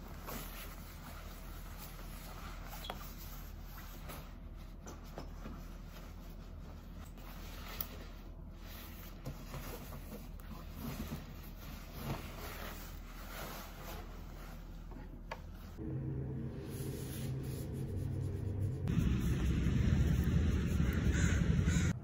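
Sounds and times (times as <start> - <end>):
nylon clothing rustling: 5.4 - 14.9
steady low hum: 14.0 - 22.0.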